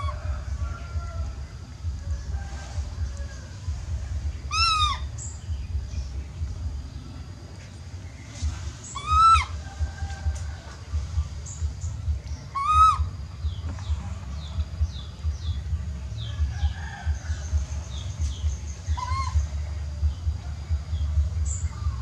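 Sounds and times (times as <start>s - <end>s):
steady low rumble: 0.0s - 22.0s
baby monkey crying: 4.5s - 5.2s, 8.9s - 9.6s, 12.5s - 13.2s, 18.8s - 19.6s.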